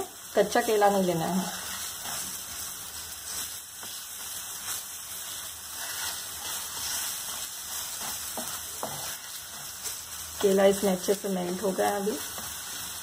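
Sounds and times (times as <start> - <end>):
food sizzling in frying pan: 0.0 - 13.0
wooden spatula scraping pan: 1.3 - 2.6, 5.2 - 10.5.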